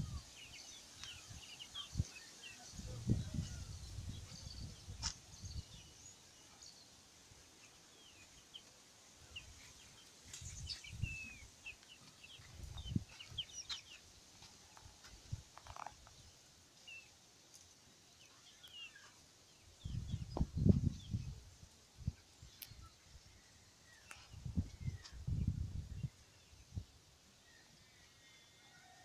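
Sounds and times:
birds chirping: 0.0s - 17.2s.

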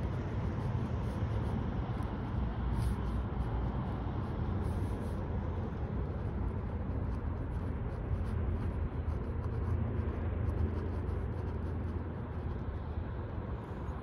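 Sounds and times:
pen scratching on paper: 0.0s - 13.2s
low outdoor rumble: 0.0s - 14.0s.

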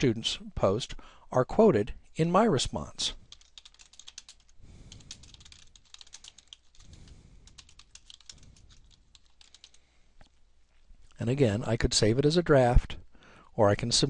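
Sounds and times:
keyboard typing clicks: 3.3s - 6.9s, 7.5s - 9.8s.

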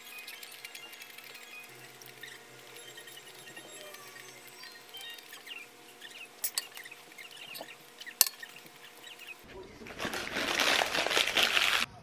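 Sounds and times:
crackling rustle: 8.6s - 11.9s.

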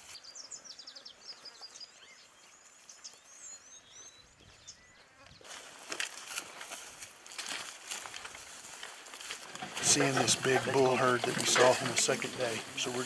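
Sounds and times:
small birds chirping: 0.0s - 5.7s.

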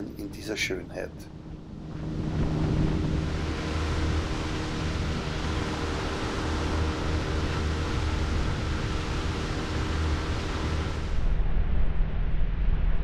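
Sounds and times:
outboard motor drone: 1.3s - 11.4s
rush of wind and water: 1.5s - 11.4s.

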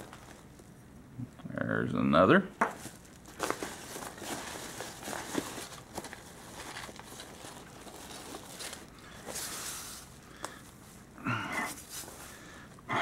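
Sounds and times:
paper mailer crinkling: 2.8s - 10.5s.

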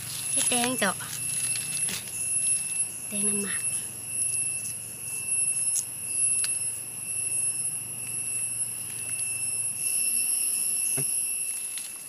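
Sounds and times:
high-pitched insect drone: 0.0s - 12.0s.

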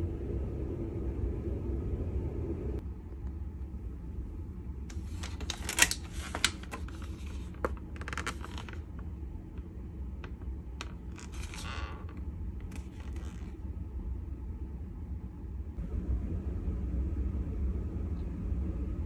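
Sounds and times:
steady low rumble: 0.0s - 19.0s
plastic crinkling: 4.9s - 9.0s
plastic pack clicking and crackling: 4.9s - 9.0s.

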